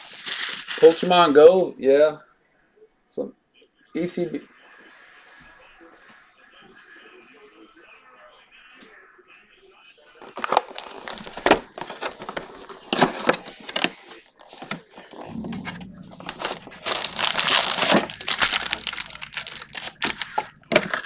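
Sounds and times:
card packs rustling and sliding: 0.0s - 1.3s, 10.2s - 21.0s
plastic wrap crinkling and tearing: 0.0s - 1.4s, 10.2s - 21.0s.

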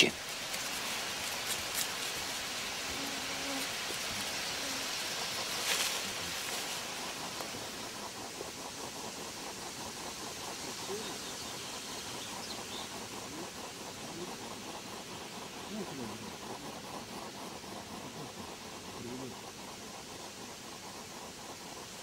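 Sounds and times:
rustle in leaf litter: 0.0s - 8.0s
faint fast ticking: 0.0s - 22.0s
steady hiss: 0.0s - 22.0s.

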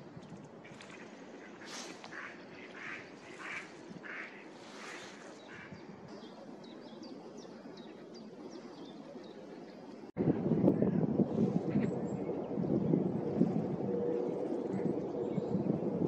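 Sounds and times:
mallard quacking: 2.1s - 4.4s.

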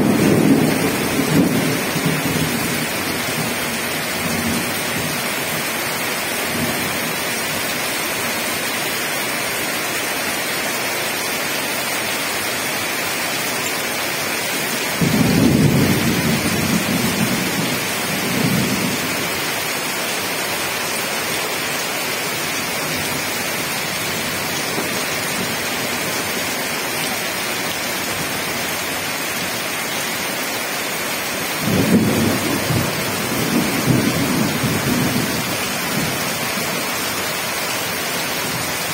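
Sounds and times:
thunder rumbling: 0.0s - 3.6s, 15.0s - 19.3s, 31.6s - 36.3s
heavy rain falling: 0.0s - 38.9s.

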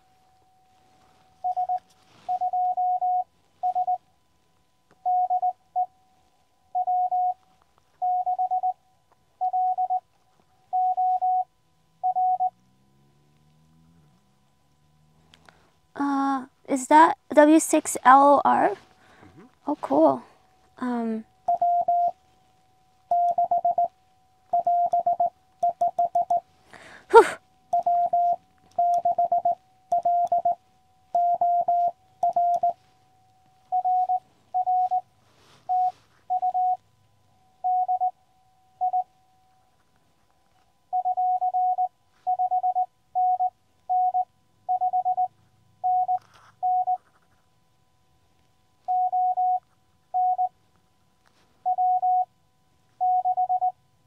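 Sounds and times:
morse code tone: 1.4s - 4.0s, 8.0s - 8.8s, 9.4s - 10.0s, 10.7s - 12.5s, 21.4s - 22.2s, 23.1s - 23.9s, 24.5s - 26.4s, 27.2s - 32.8s, 33.7s - 36.8s, 37.6s - 38.2s, 38.8s - 39.1s, 40.9s - 47.0s, 48.9s - 50.6s, 51.6s - 52.3s, 53.0s - 53.8s.

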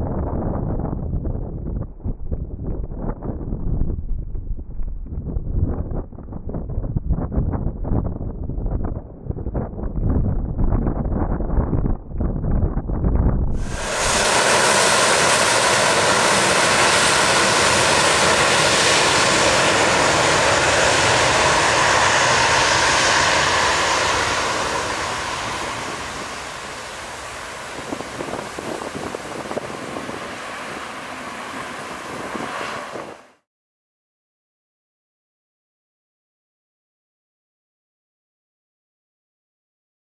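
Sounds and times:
jet engines at takeoff thrust: 13.6s - 33.4s.

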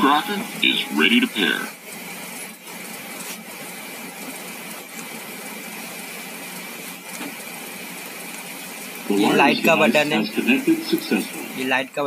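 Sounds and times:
faint high whine: 0.0s - 2.2s
background hiss: 0.0s - 12.0s.

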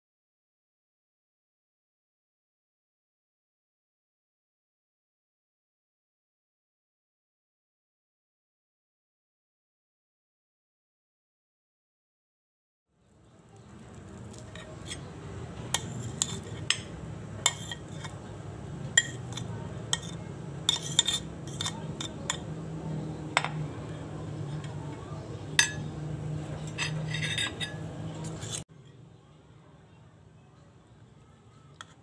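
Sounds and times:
metal spoon clinking on ceramic plates: 15.7s - 18.2s, 18.9s - 22.5s, 25.6s - 25.9s, 26.5s - 28.6s.

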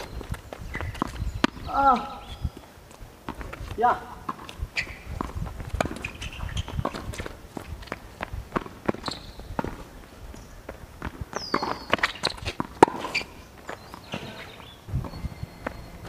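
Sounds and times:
shoe squeak: 0.0s - 2.6s, 4.7s - 7.4s, 8.9s - 9.6s, 11.3s - 16.0s
quick footsteps and shoe scuffs: 0.0s - 3.8s.

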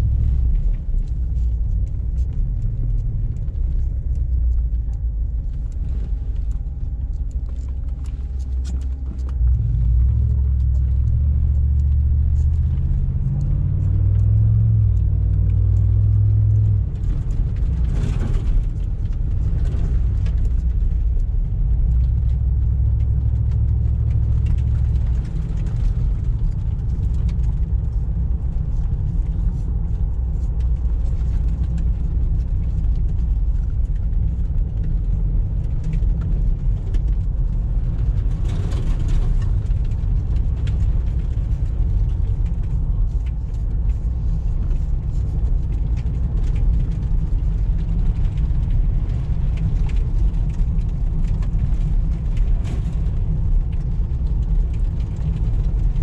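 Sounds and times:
car exhaust rumble: 0.0s - 56.0s.

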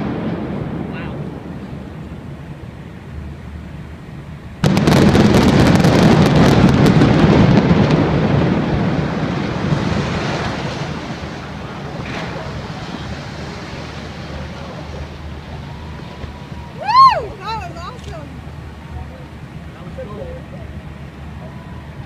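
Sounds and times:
loud blast: 0.0s - 2.6s, 4.6s - 14.4s
heavy rumble of building collapsing: 4.6s - 17.2s.

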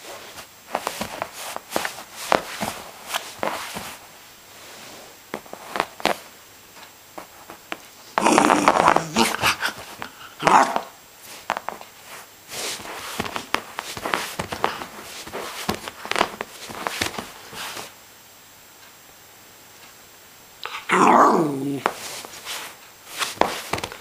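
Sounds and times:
paws tapping and scratching: 0.3s - 4.0s, 5.3s - 6.3s, 7.2s - 17.9s, 21.6s - 24.0s
puppy growling: 8.2s - 10.9s, 20.6s - 21.9s.

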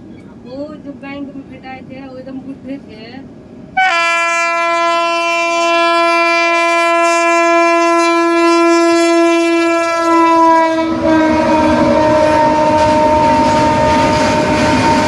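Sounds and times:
rumble of passing train: 0.0s - 15.0s
locomotive air horn blast: 3.8s - 15.0s.

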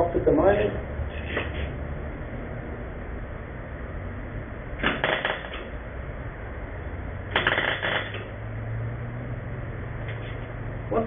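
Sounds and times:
arc welder crackling sizzle: 4.8s - 5.7s, 7.3s - 8.3s.

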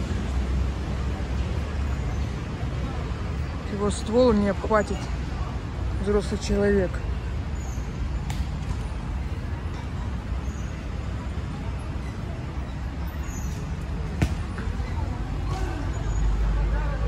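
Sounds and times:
distant traffic hum: 0.0s - 17.0s
faint voices: 9.3s - 17.0s.

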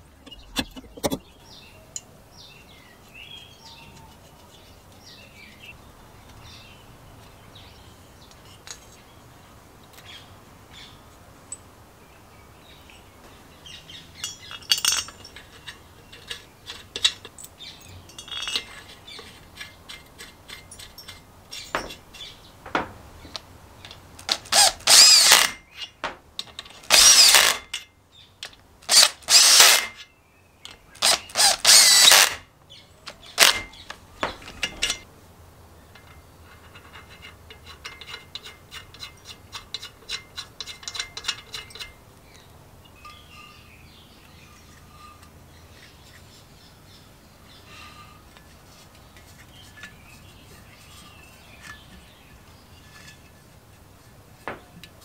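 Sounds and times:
quiet handling sounds: 0.0s - 7.4s, 8.2s - 11.7s, 44.2s - 55.0s
power driver bursts: 31.0s - 32.4s.

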